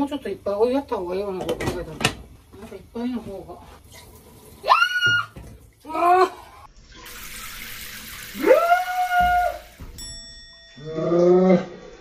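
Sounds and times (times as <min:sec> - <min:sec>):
faucet running into sink: 0:06.8 - 0:10.2.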